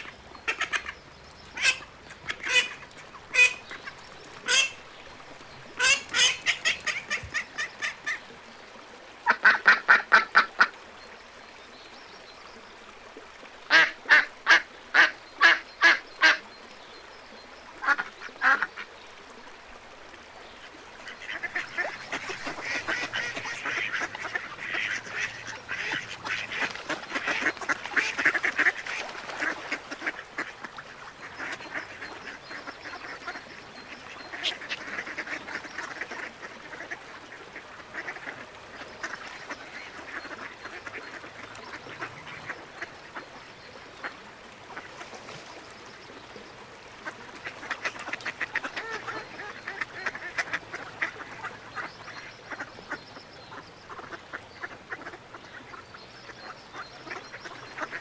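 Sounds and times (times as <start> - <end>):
ducks quacking: 0.0 - 4.8, 5.8 - 8.2, 9.2 - 10.7, 21.0 - 43.2, 47.0 - 58.0.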